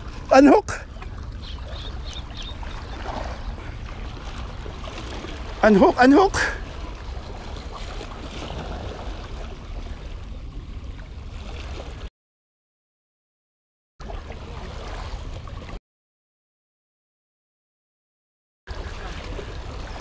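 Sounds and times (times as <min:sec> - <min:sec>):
waves lapping against rocks: 0:00.0 - 0:12.1, 0:14.0 - 0:15.8, 0:18.7 - 0:20.0.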